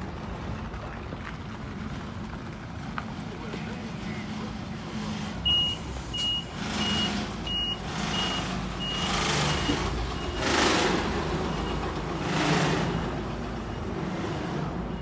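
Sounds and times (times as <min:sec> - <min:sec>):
vehicle reversing alarm beeping: 0:05.4 - 0:15.0.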